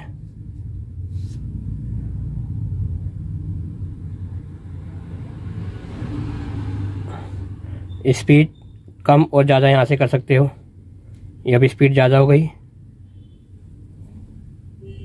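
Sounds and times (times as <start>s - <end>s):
low rumbling hum: 0.0s - 9.1s.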